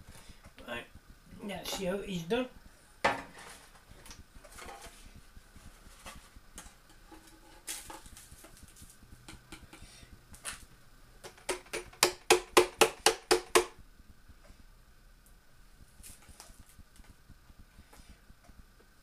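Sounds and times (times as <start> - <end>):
crumbs rustling into foil tray: 3.3 - 9.0.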